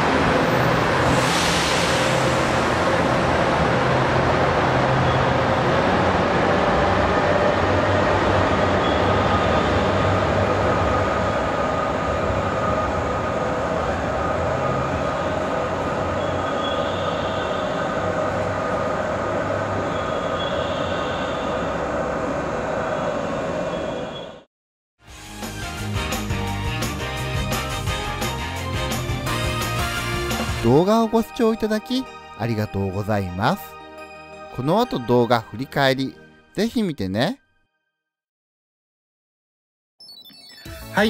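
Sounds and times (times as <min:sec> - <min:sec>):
diesel train engine rumbling: 0:00.0 - 0:24.2
faint train whine: 0:00.0 - 0:24.5.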